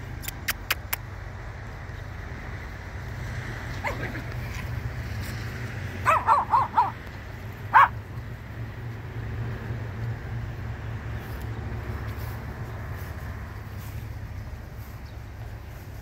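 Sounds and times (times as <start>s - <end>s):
dog barking: 6.0s - 7.0s, 7.7s - 8.0s.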